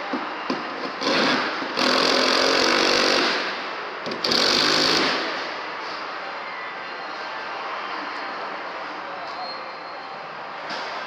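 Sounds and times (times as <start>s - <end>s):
power tool running in bursts: 1.0s - 3.5s, 4.2s - 5.3s.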